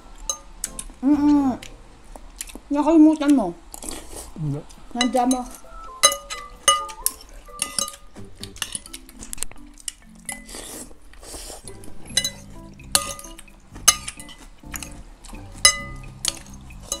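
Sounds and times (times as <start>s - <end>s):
cutlery clinking on ceramic bowls: 5.0s - 10.5s, 11.7s - 17.0s.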